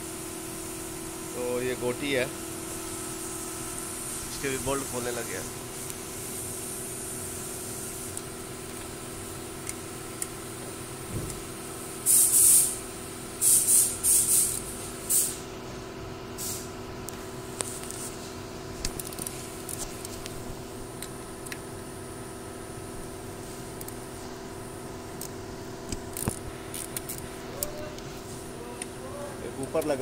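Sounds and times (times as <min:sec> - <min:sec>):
steady hum: 0:00.0 - 0:30.0
ratchet wrench ratcheting: 0:18.8 - 0:20.2, 0:25.2 - 0:27.8.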